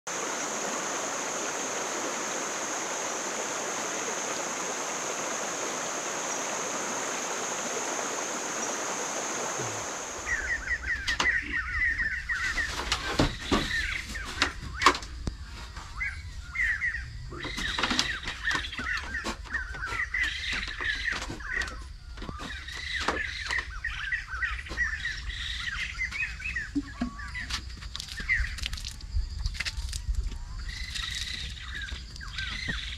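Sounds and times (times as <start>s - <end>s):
stream rushing over rocks: 0.1s - 10.6s
small birds chirping: 8.6s - 32.9s.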